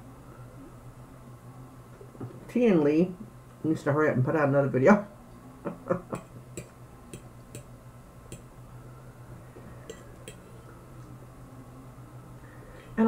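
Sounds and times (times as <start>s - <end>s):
low hum: 5.3s - 13.0s
fork clicking against plate: 9.9s - 10.5s.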